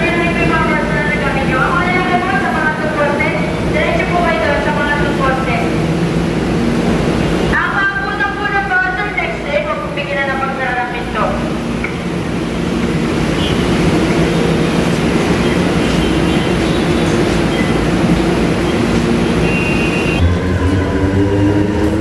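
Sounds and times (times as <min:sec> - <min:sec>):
heavy vehicle rumbling: 0:10.2 - 0:22.0
high squeals: 0:19.4 - 0:20.3.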